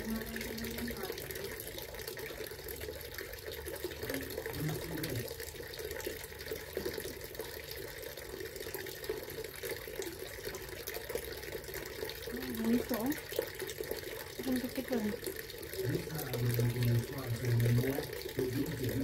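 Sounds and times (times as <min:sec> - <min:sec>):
fountain water splashing: 0:00.0 - 0:19.0.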